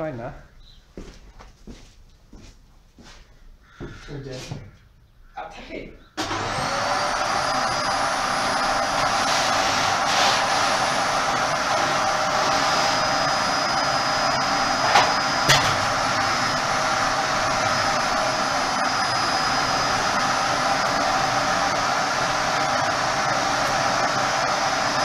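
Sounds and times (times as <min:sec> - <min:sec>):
vacuum cleaner running: 0:06.2 - 0:25.0.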